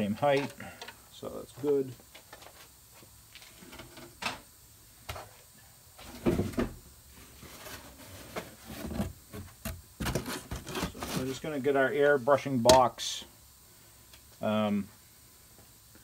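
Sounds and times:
objects knocking and rustling: 6.0s - 11.4s
cardboard box set down on wood: 6.1s - 6.8s.

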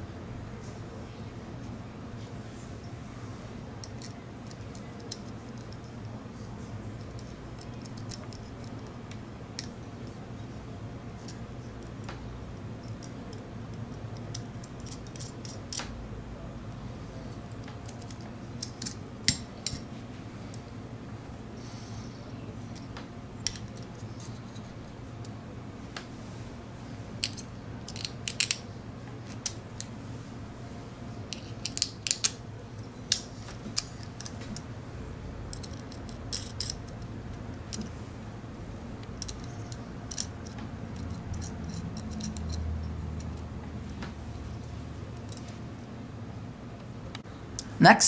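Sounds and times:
low steady hum: 0.0s - 48.0s
small metal parts clinking: 14.2s - 15.8s, 27.2s - 28.6s, 35.5s - 37.1s, 39.1s - 43.4s.

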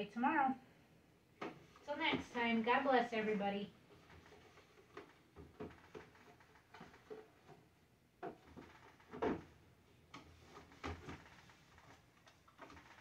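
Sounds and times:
plastic refrigerator shelves knocking: 8.2s - 9.6s.

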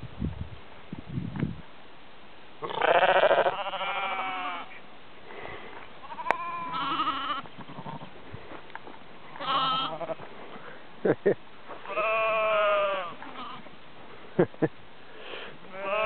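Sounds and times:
sheep bleating: 2.6s - 4.8s, 6.0s - 8.1s, 9.3s - 10.3s, 11.8s - 13.7s, 15.7s - 16.0s.

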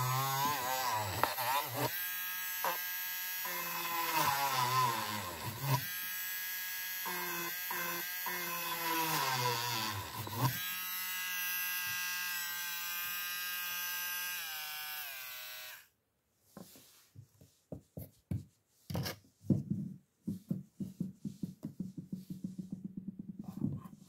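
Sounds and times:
rotary drill whining: 0.0s - 15.9s
knocks: 19.5s - 24.0s
rubbing strokes on wooden board: 20.2s - 22.8s.

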